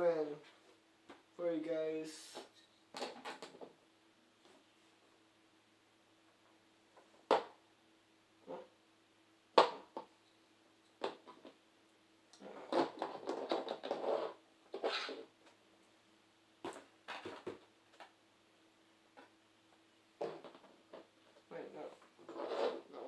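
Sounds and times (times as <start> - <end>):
rustling and scraping: 12.4 - 15.6, 16.6 - 18.2, 20.2 - 23.0.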